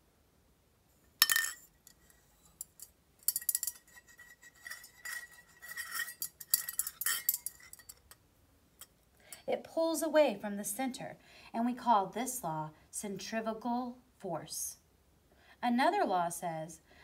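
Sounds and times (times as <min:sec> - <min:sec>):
tin pail clinking: 0:01.2 - 0:01.7, 0:02.6 - 0:08.2
metallic ring: 0:01.2 - 0:08.2.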